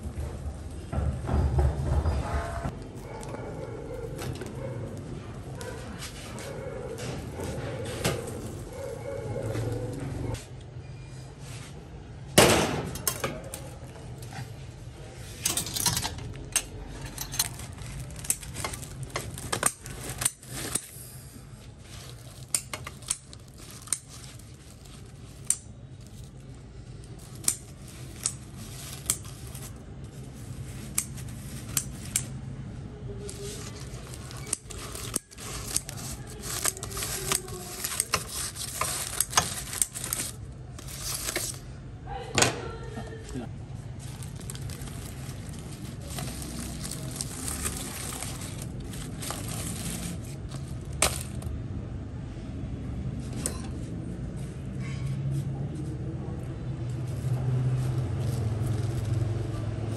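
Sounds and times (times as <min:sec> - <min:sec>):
foil crackling and rustling: 0:04.1 - 0:10.2, 0:16.2 - 0:41.7, 0:43.5 - 0:51.7, 0:57.0 - 0:59.9
scissors snipping foil: 0:15.4 - 0:21.3, 0:22.0 - 0:32.4, 0:33.2 - 0:41.7.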